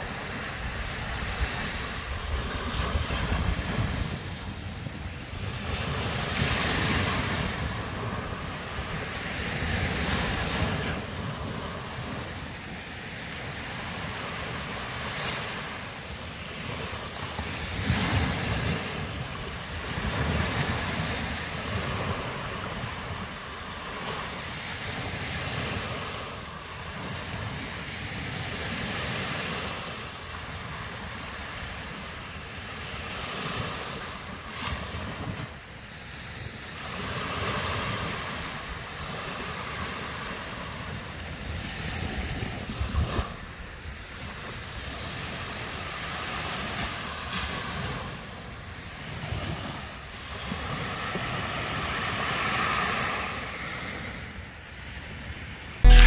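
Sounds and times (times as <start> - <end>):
wind buffeting microphone: 0.0 - 12.4
sea surf washing onto beach: 0.0 - 56.0.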